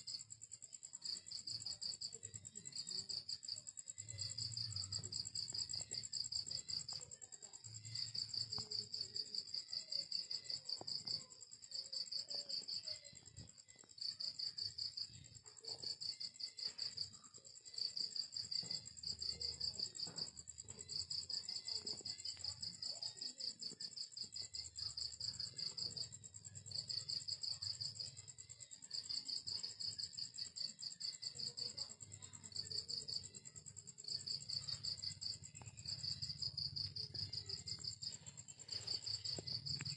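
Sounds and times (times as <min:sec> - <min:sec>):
crickets chirping in trills: 0:00.0 - 0:39.9.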